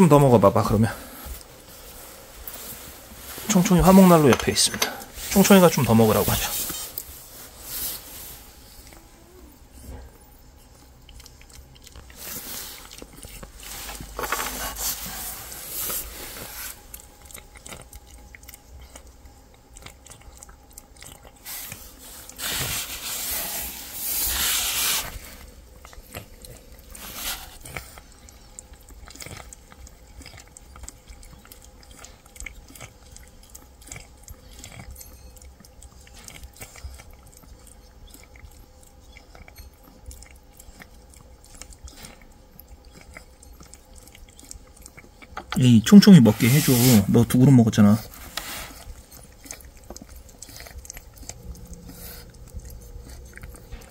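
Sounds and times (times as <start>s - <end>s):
cats chewing wet food: 0.0s - 53.9s.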